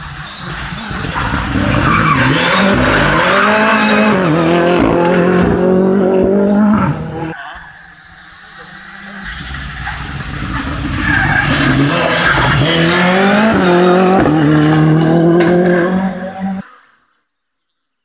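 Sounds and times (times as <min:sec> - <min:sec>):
rally car engine revving: 0:00.0 - 0:07.4, 0:08.5 - 0:16.7.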